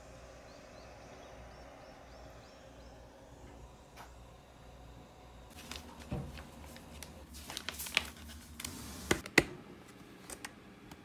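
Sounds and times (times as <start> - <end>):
plastic bag crinkling: 5.5 - 9.2.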